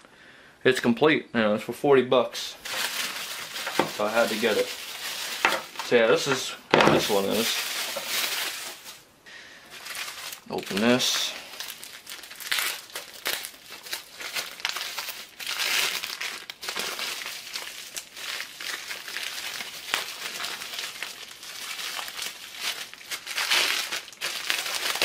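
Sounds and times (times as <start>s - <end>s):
bubble wrap rustling: 2.6s - 25.0s
plastic bag crinkling: 2.6s - 25.0s.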